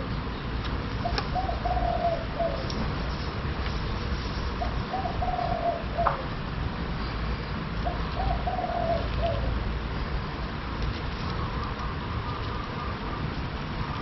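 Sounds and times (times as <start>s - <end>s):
dove cooing: 1.0s - 3.2s, 4.6s - 6.3s, 7.8s - 9.7s.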